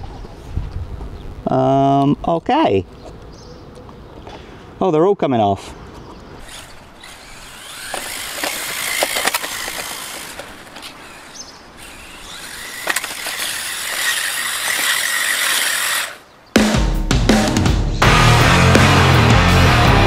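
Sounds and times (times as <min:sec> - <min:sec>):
sharp clicks over joints: 0:05.9 - 0:16.2
thin motor whine: 0:06.4 - 0:16.2.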